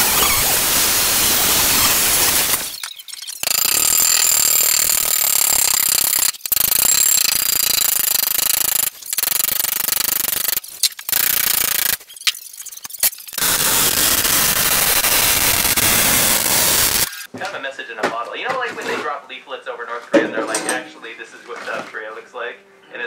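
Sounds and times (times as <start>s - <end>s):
angle grinder on steel: 0.0s - 2.8s, 3.4s - 12.0s, 12.8s - 17.3s.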